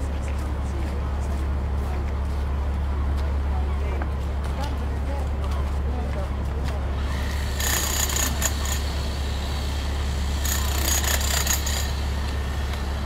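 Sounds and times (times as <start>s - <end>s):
excavator engine hum: 0.0s - 13.0s.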